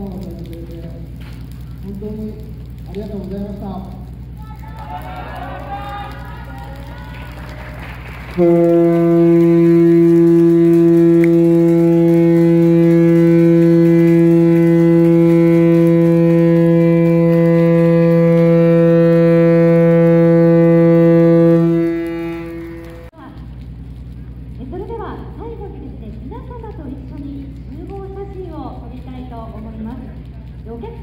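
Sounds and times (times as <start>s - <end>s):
ship's whistle blast: 8.0s - 23.1s.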